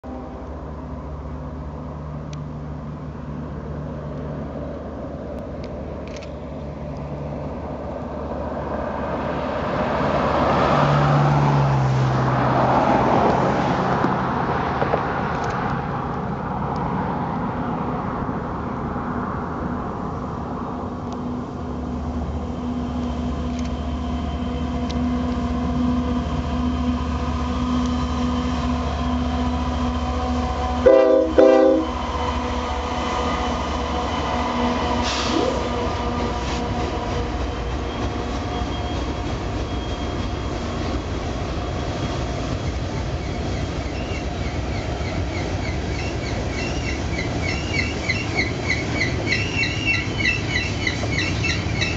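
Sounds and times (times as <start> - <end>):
diesel locomotive engine drone: 0.0 - 51.9
freight cars rolling on rails: 0.1 - 51.9
train horn blasts: 24.4 - 38.3.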